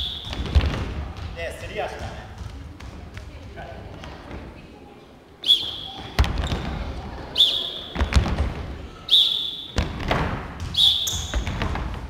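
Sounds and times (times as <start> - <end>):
basketballs bouncing on hardwood floor: 0.0 - 4.3, 5.9 - 6.8, 8.0 - 8.6, 9.8 - 12.0
short high squeaks: 10.8 - 11.4.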